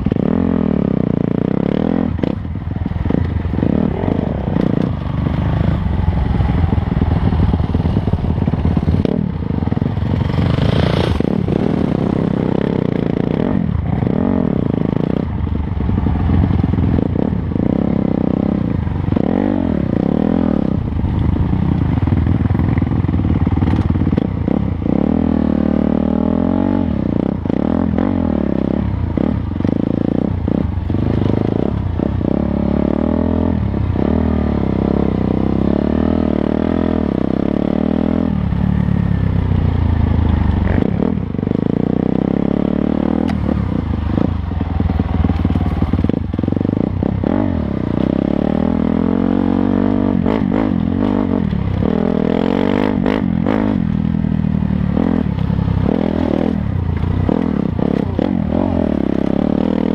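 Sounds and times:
dirt bike engine revving: 0:03.1 - 0:15.3, 0:16.4 - 0:20.9, 0:40.4 - 0:54.1, 0:54.8 - 0:59.9.

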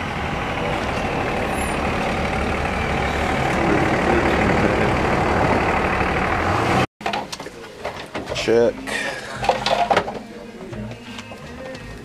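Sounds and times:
large vehicle engine idling: 0:00.0 - 0:06.9.

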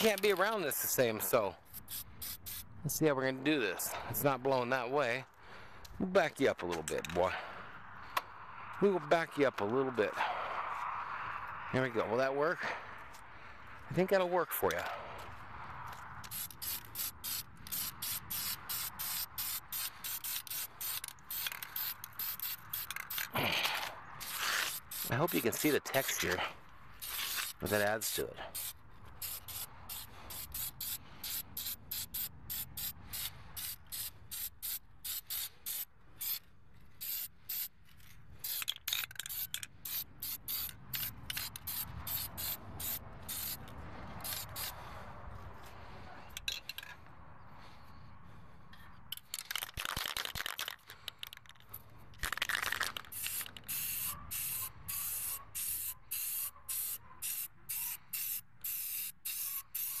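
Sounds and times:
spray paint hissing from aerosol can: 0:01.6 - 0:02.7, 0:16.2 - 0:23.4, 0:24.2 - 0:36.4, 0:37.0 - 0:37.7, 0:38.4 - 0:44.8, 0:52.3 - 1:00.0.

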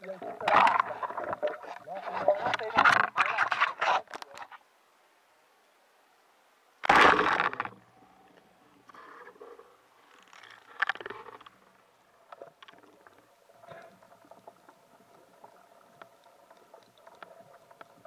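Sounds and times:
underwater water swishes: 0:00.0 - 0:04.6, 0:06.8 - 0:18.0
faint clicks and knocks: 0:10.0 - 0:18.0.

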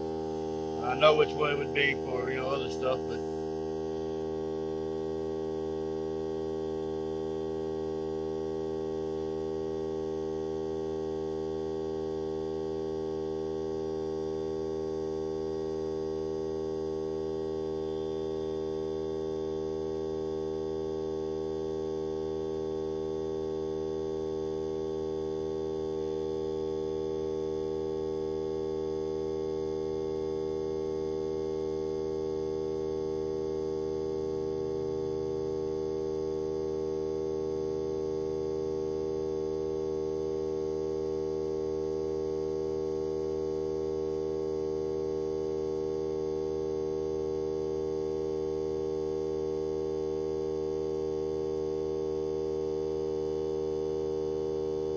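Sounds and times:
air compressor humming: 0:00.0 - 0:03.4.

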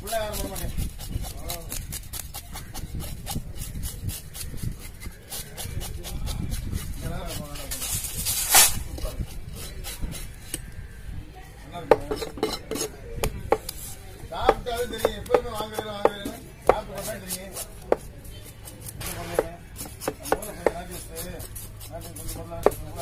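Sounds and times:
knife scraping fish scales: 0:00.0 - 0:10.7, 0:12.0 - 0:23.0.

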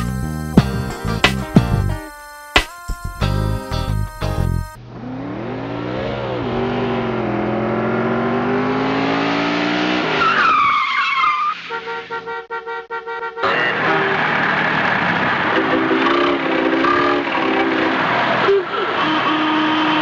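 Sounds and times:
car engine revving: 0:03.2 - 0:10.8, 0:13.2 - 0:20.0
tire screech: 0:03.5 - 0:12.5, 0:13.4 - 0:20.0.

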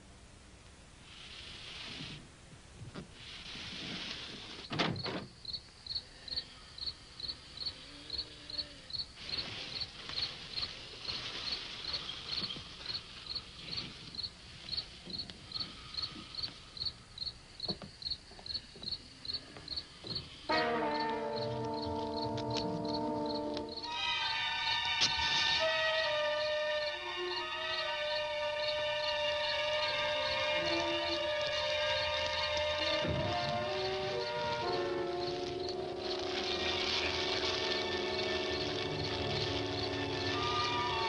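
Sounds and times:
crickets chirping: 0:03.2 - 0:41.0
sustained music chord: 0:20.5 - 0:41.0.

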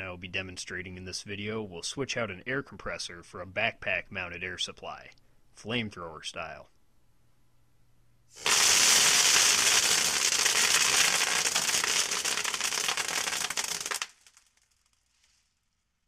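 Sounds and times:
airsoft gun firing burst: 0:08.4 - 0:14.1.

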